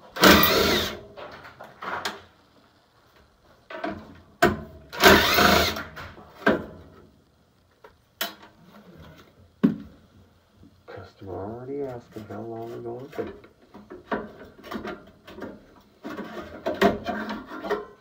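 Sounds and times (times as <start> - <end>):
impact driver whirring: 0.2 - 1.0, 5.0 - 5.9.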